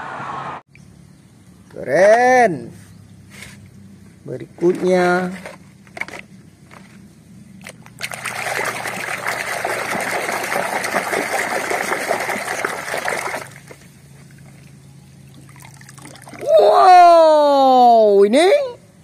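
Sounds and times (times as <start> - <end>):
water splashing in a plastic basin: 7.6 - 16.5.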